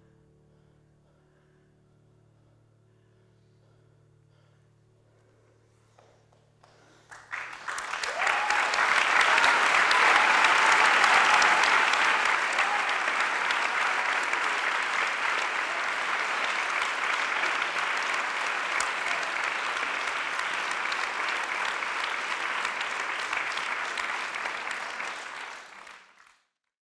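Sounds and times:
audience applauding: 6.6s - 26.5s.

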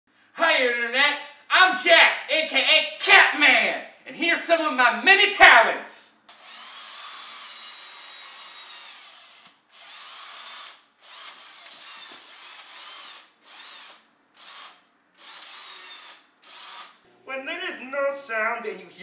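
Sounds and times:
power drill whirring: 6.3s - 17.0s.

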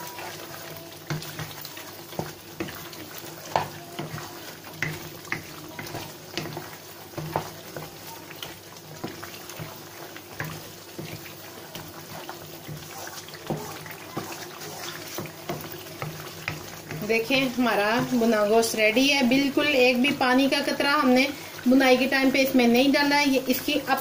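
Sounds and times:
frying hiss: 0.0s - 24.0s
spatula knocking against wok: 3.5s - 12.0s.

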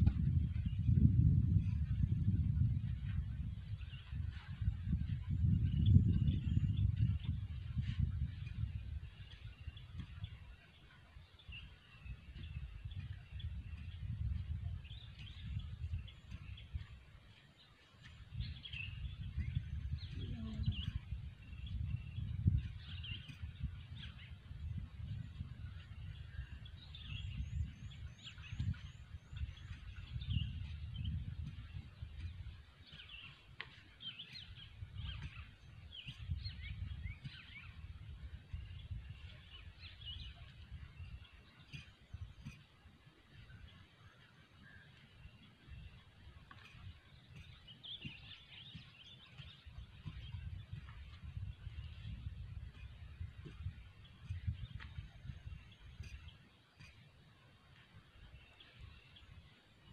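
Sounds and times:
small birds chirping: 0.0s - 59.9s
wind rumbling on microphone: 0.0s - 59.9s
low uneven rumbling: 18.2s - 26.4s.

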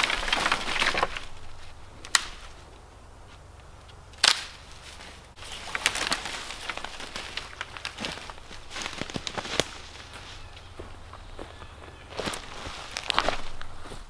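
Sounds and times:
branch snapping: 0.0s - 2.7s, 3.6s - 9.9s, 12.2s - 13.7s
loud branch crack: 0.0s - 2.7s, 3.8s - 10.1s, 12.2s - 13.8s
twigs rustling and crackling: 0.0s - 14.0s.

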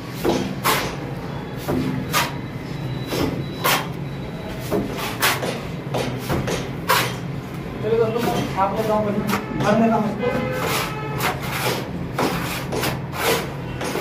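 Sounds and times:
trowel scrape and mortar slap: 0.0s - 2.4s, 3.1s - 4.0s, 4.6s - 7.2s, 10.6s - 14.0s.

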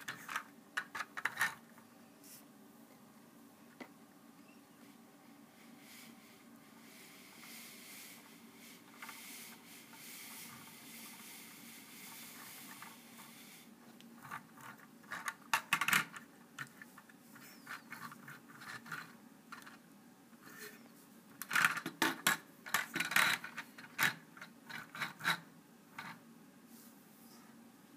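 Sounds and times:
plastic bricks clicking and rattling: 21.4s - 25.4s.

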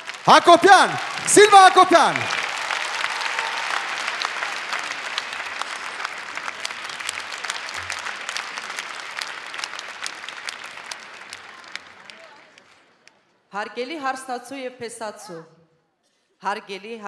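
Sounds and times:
large audience applauding: 0.0s - 13.0s.

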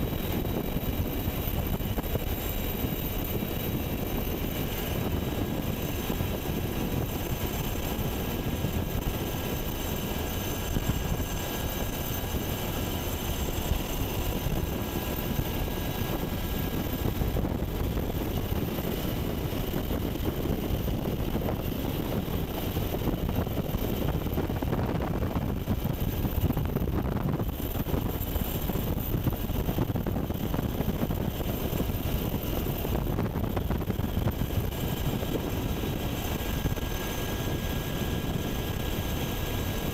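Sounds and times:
helicopter rotor and engine din: 0.0s - 39.9s
high steady whining tones: 0.0s - 39.9s.

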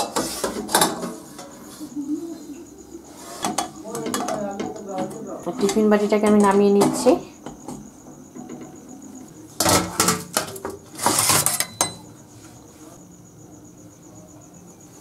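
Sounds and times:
metal box and plate clattering: 0.0s - 1.6s, 9.6s - 12.0s.

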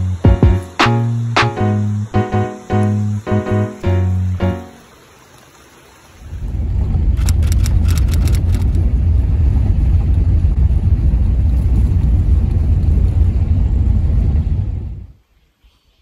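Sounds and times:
car tyres and engine rumbling: 6.4s - 15.2s
sharp clicks: 7.2s - 8.8s.

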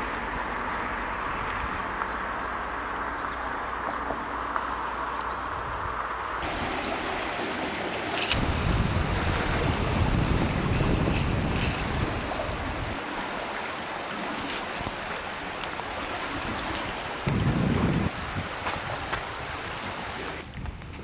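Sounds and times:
wind rumbling on microphone: 0.0s - 21.0s
river rushing: 6.4s - 20.5s.

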